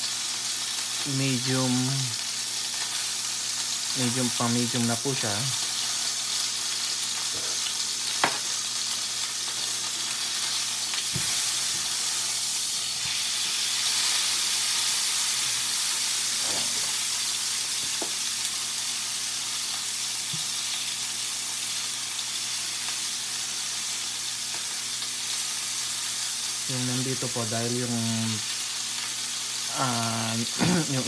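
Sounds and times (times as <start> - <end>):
steak sizzling in a pan: 0.0 - 31.0.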